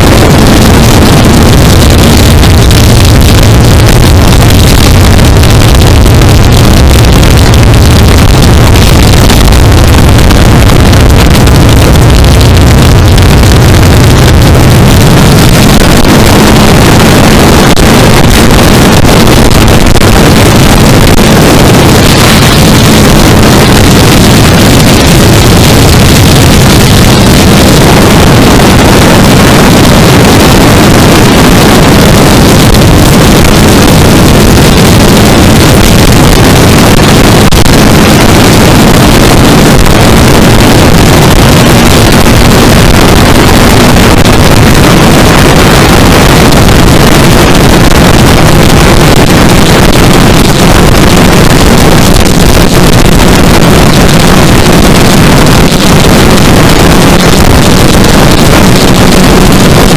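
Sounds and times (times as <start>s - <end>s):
wind noise on microphone: 0.0s - 59.9s.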